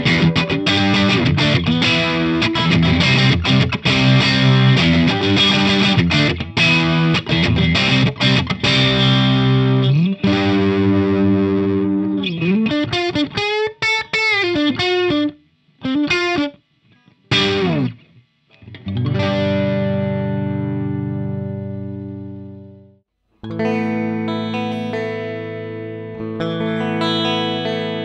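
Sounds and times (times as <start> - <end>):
electric guitar through amp: 0.0 - 28.0.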